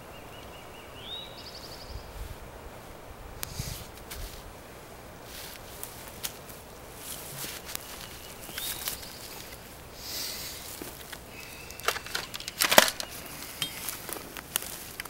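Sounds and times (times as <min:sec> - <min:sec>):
footsteps on dry pine needles: 0:01.6 - 0:15.0
rifle clicks and knocks: 0:10.8 - 0:14.1.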